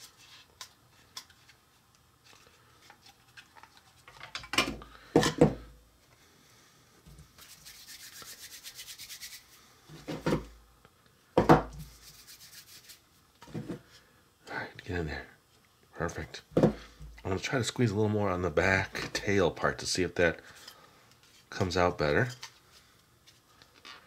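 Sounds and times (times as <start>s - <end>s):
fast scratchy rubbing: 7.4s - 9.6s, 11.8s - 13.0s.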